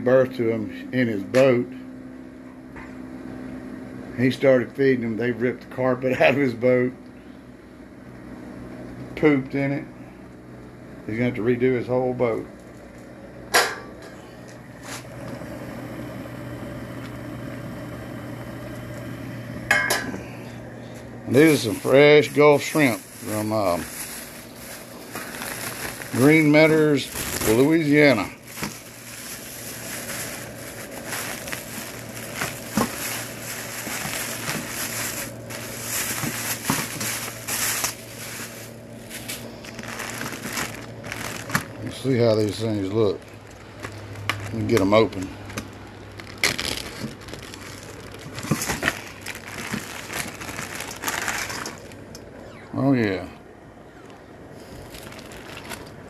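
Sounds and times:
gas burner rushing hum: 0.0 - 56.0
burner ignition click: 16.9 - 17.7
plastic bags crinkling: 21.3 - 52.1, 54.6 - 56.0.

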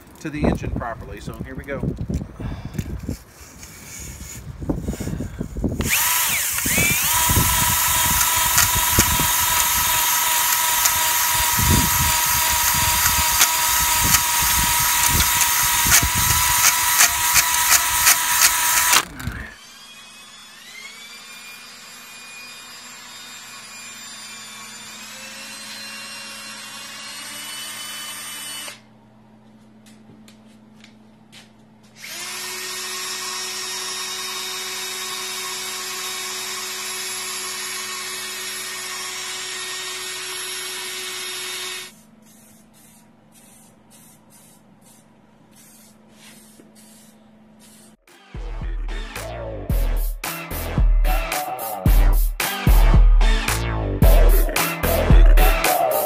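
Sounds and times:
drill spinning cylinder hone: 3.0 - 28.8, 32.0 - 42.0.

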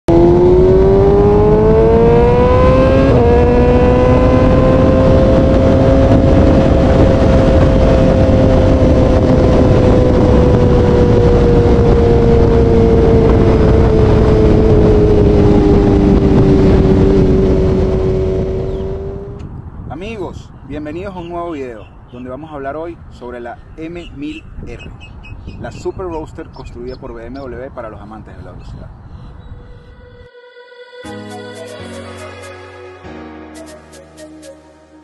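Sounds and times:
motorcycle engine accelerating: 0.0 - 19.7
wind noise rushing: 0.1 - 21.3, 24.0 - 26.8, 28.2 - 30.6.

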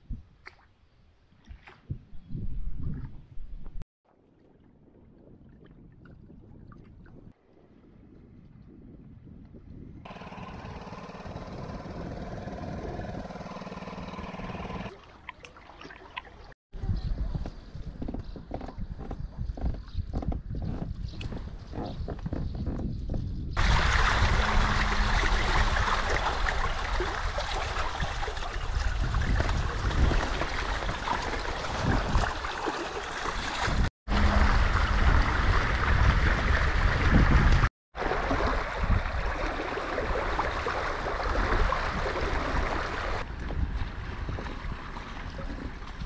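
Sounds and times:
wind rumbling on microphone: 1.2 - 3.8, 4.4 - 14.9, 16.8 - 46.0
water rushing along hulls: 10.1 - 16.6, 23.6 - 46.0.

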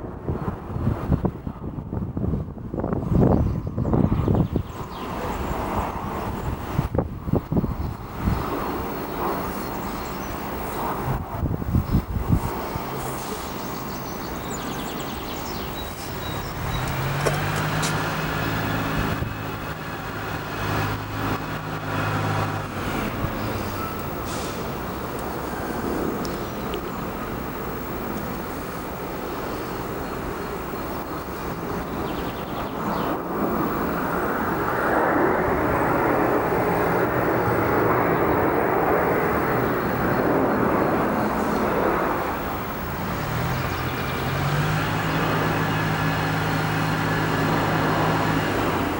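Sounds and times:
jet engines flying overhead: 0.0 - 48.9.

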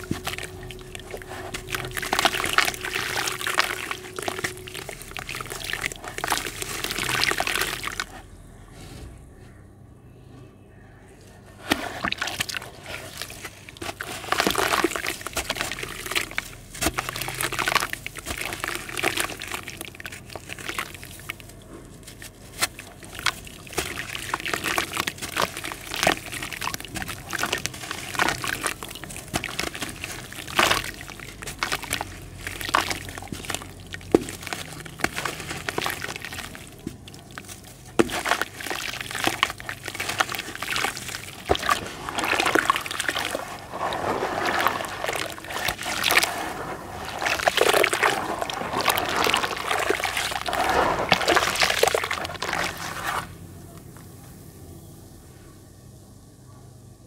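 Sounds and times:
clay crackling and breaking: 0.0 - 8.2, 11.6 - 53.3
hands sloshing mud: 0.0 - 8.2, 11.6 - 53.4
pieces plopping into water: 22.6 - 53.2.

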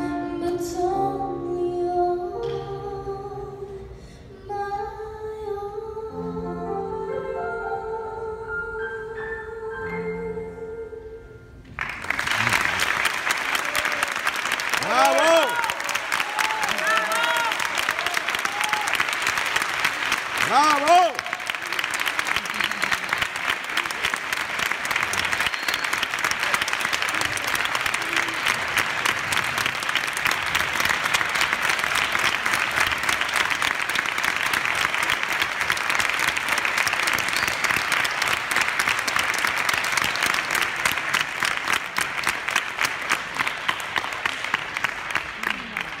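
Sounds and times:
audience applauding: 11.8 - 46.0.

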